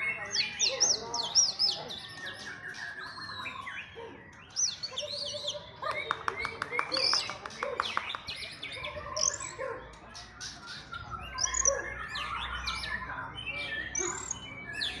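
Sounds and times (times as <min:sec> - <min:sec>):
birds whistling songs: 0:00.0 - 0:15.0.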